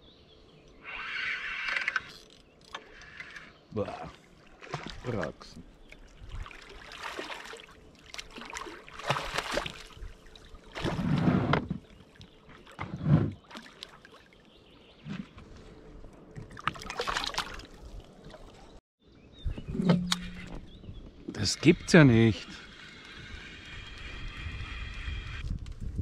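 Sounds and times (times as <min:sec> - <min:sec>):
fish thrashing and splashing: 0:06.0 - 0:11.1, 0:16.4 - 0:18.5.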